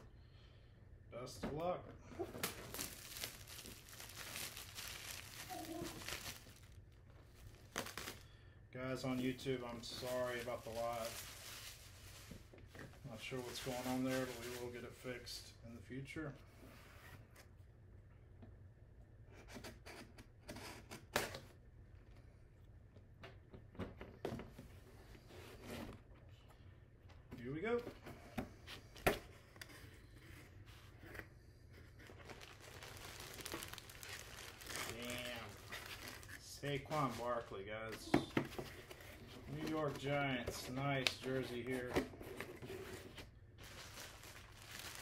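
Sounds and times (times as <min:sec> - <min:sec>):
plastic wrap crinkling and tearing: 0:02.4 - 0:08.3, 0:09.1 - 0:12.5, 0:13.2 - 0:14.8, 0:32.0 - 0:37.5, 0:43.6 - 0:45.0.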